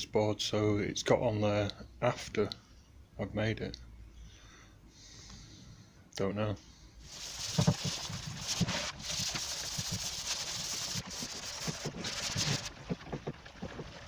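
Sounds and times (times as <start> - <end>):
hand sanding scratchy hiss: 7.1 - 12.8
small irregular knocks: 11.0 - 14.0.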